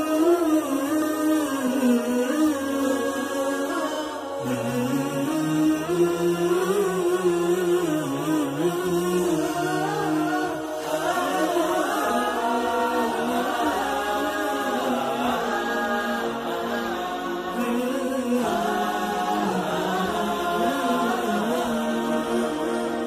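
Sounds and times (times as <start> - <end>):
voices chanting without percussion: 9.6 - 23.0.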